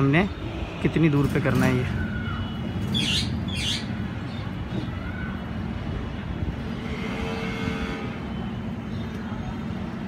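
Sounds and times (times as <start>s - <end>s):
distant traffic rumble: 0.0s - 10.0s
harsh bird calls: 2.0s - 4.6s.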